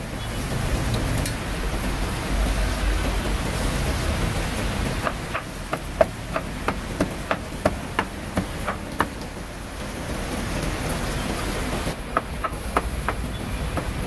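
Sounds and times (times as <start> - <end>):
steady hiss: 0.0 - 14.0
cleaver chopping on cutting board: 5.0 - 9.2, 12.1 - 14.0.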